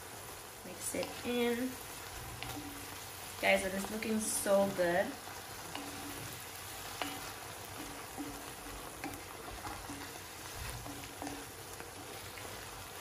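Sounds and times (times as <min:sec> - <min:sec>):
meat sizzling in a pot: 0:00.0 - 0:13.0
wooden spoon scraping a pot: 0:05.2 - 0:13.0.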